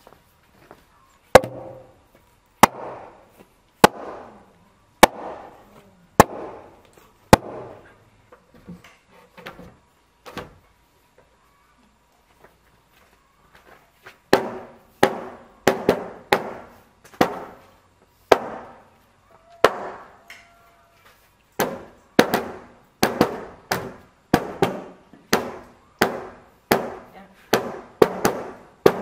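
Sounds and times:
hoe blades striking stony ground: 0:01.4 - 0:02.0, 0:02.6 - 0:03.2.

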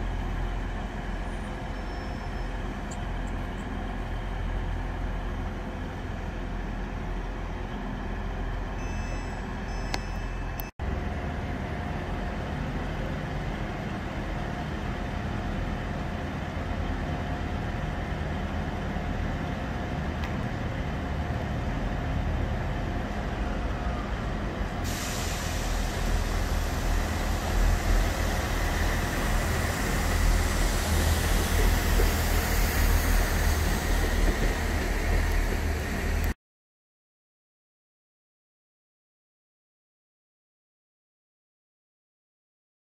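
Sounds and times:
diesel train engines rumbling: 0:00.0 - 0:36.4.

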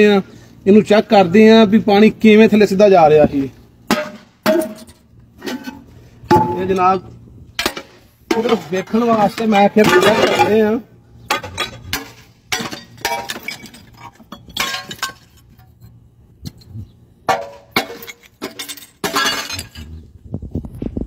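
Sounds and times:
shards clinking: 0:07.6 - 0:16.0, 0:17.3 - 0:20.0
porcelain cracking and breaking: 0:11.3 - 0:15.5, 0:17.4 - 0:20.0.

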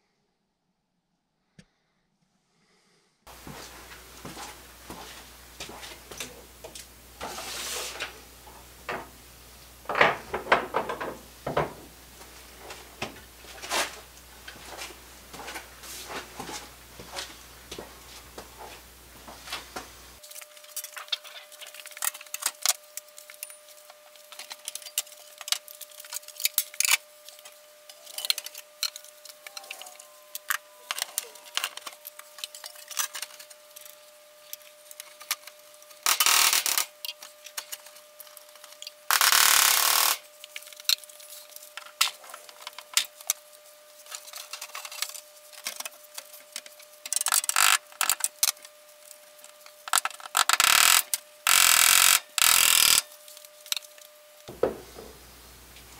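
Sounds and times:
faint steady hum: 0:01.5 - 0:55.9
tools and metal signs clattering: 0:09.9 - 0:11.9.

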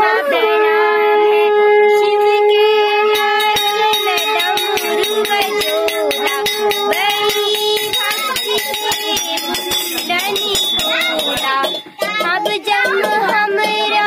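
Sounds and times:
conch shell blown: 0:00.0 - 0:07.9
rhythmic sharp strikes: 0:03.0 - 0:14.0.

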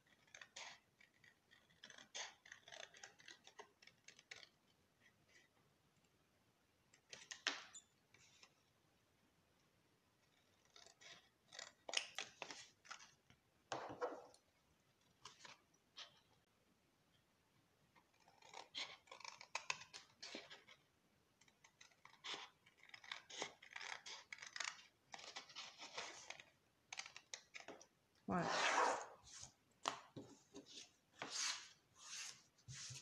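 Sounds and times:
scissors snipping cardstock: 0:00.0 - 0:04.6, 0:18.0 - 0:20.8, 0:21.4 - 0:28.4.

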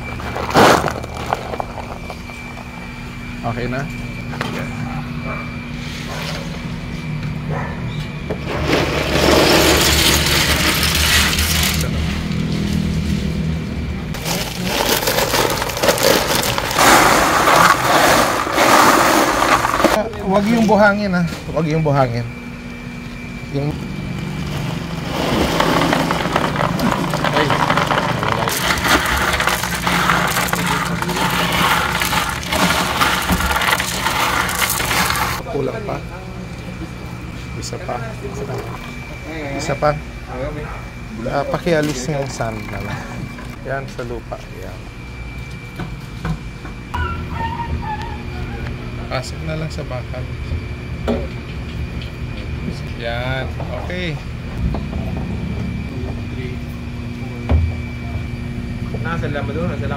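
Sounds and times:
steady low hum: 0:00.0 - 0:59.9
plastic balls clattering into bag: 0:00.2 - 0:02.2, 0:14.2 - 0:20.0, 0:25.4 - 0:35.4.

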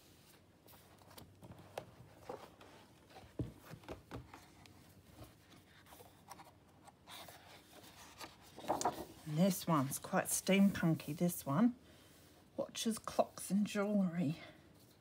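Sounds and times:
paper rustling and sliding: 0:04.3 - 0:10.0.

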